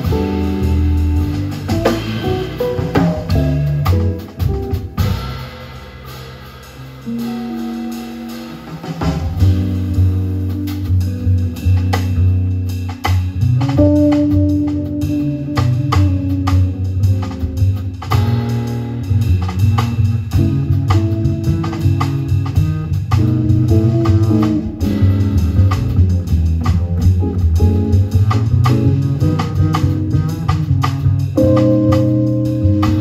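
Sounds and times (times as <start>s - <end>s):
plucked upright bass: 0.0s - 5.3s, 9.1s - 33.0s
drum kit cymbals: 0.0s - 33.0s
jazz guitar: 0.0s - 33.0s.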